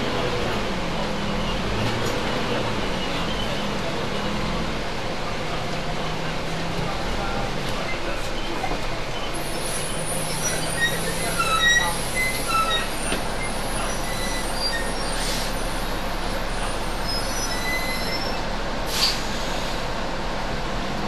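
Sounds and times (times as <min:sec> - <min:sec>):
bus engine and road noise: 0:00.0 - 0:21.0
short air hiss: 0:18.9 - 0:19.8.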